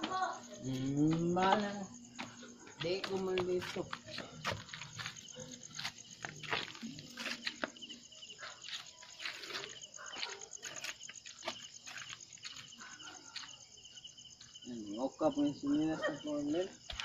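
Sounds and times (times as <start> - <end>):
crickets trilling: 0.0 - 17.0
short scuffing noises: 1.0 - 13.5.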